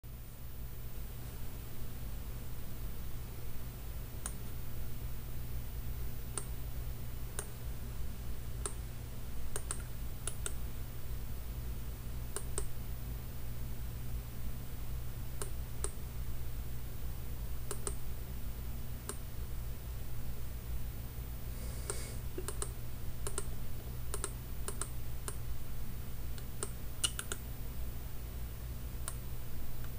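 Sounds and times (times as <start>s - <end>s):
steady low hum: 0.1s - 29.9s
mouse buttons clicking: 9.5s - 10.6s, 12.3s - 12.7s, 17.7s - 18.0s, 21.9s - 23.5s, 24.1s - 25.4s, 26.4s - 27.4s.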